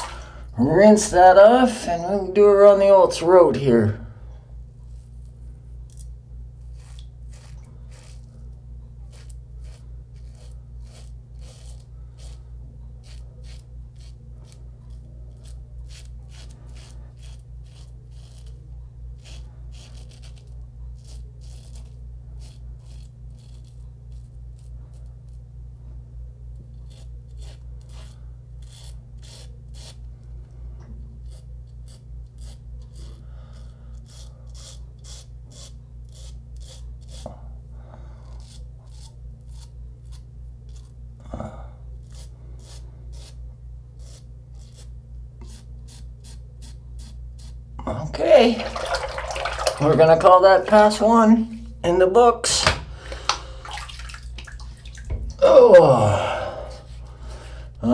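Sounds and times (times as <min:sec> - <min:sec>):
steady low hum: 0:00.0 - 0:57.9
razor scraping stubble: 0:04.8 - 0:25.5, 0:26.6 - 0:30.2, 0:31.1 - 0:37.4, 0:38.1 - 0:41.0, 0:41.9 - 0:51.7.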